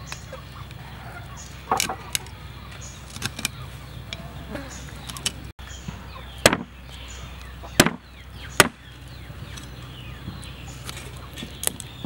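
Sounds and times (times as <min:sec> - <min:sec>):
cleaver chopping on wooden board: 0:06.4 - 0:06.7, 0:07.8 - 0:08.0.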